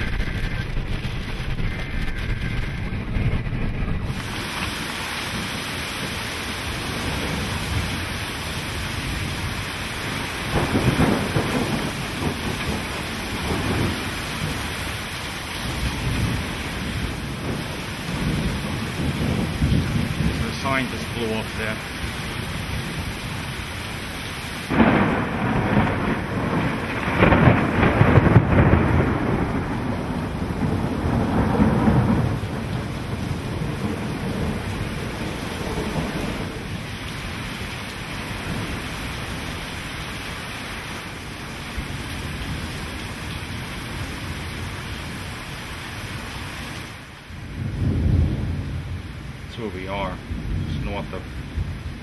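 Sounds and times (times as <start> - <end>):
thunder crack: 0.0 - 22.0, 24.7 - 37.2, 47.4 - 49.2
heavy rain: 0.0 - 52.0
thunder rumbling: 0.0 - 52.0.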